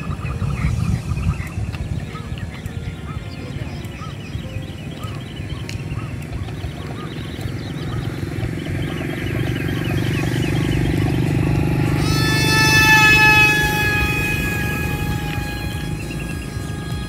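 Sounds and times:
high whine: 0.0 - 17.0
model plane propeller buzzing: 4.8 - 17.0.

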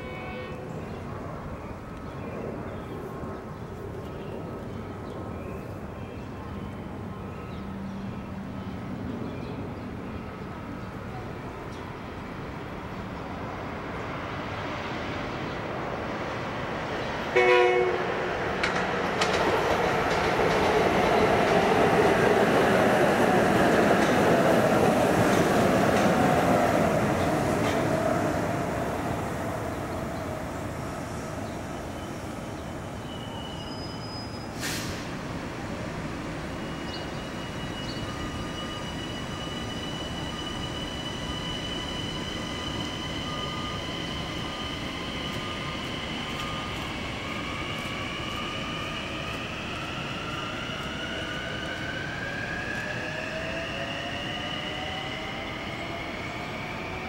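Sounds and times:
train rail noise: 3.1 - 57.0.

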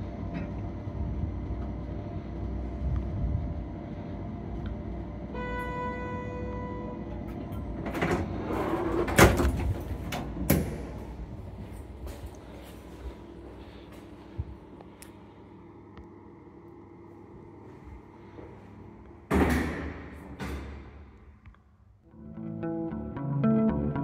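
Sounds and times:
lift humming: 0.0 - 21.6
sliding doors rushing and clunking: 7.2 - 11.0.

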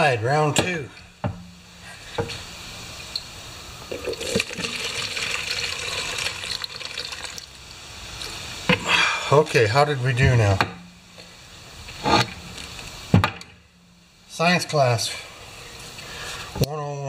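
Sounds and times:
liquid pouring into plastic cup: 3.9 - 7.6.

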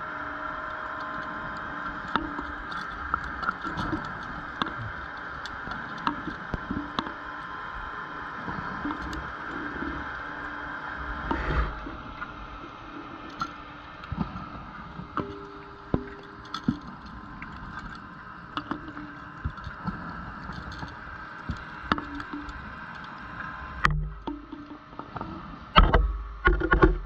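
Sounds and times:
underwater hiss and hum: 0.0 - 27.0
small clicks and knocks: 0.8 - 7.2, 15.0 - 27.0
rush of noise: 10.9 - 12.6.

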